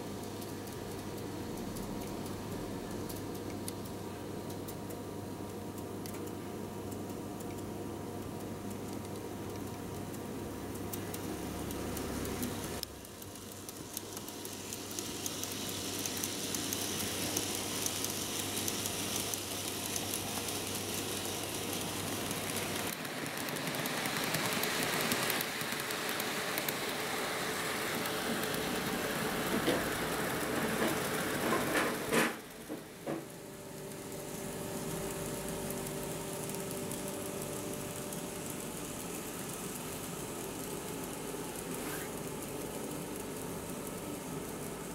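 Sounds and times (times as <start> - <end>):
model train motor hum: 11.1 - 33.2, 33.8 - 44.9
model train wheels rattling on rail: 13.4 - 33.2.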